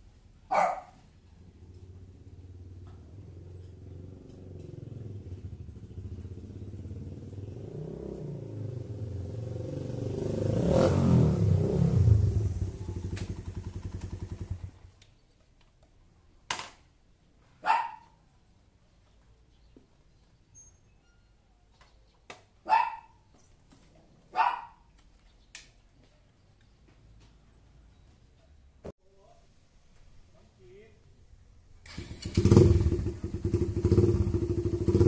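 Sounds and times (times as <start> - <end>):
motorcycle engine approaching: 1.3 - 15.0, 31.9 - 35.0.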